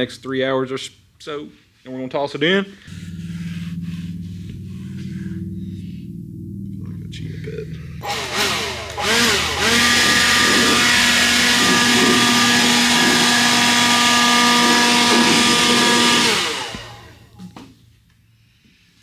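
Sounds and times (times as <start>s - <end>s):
power tool motor running: 8.0s - 17.5s.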